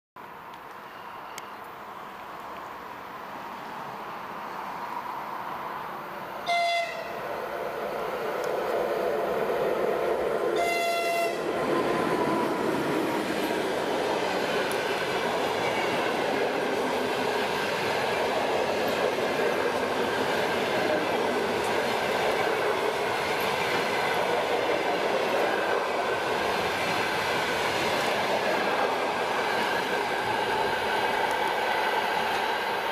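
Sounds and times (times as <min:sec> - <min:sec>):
locomotive horn blast: 0:06.4 - 0:07.2, 0:10.6 - 0:11.5
train wheels rushing on rails: 0:06.5 - 0:32.9.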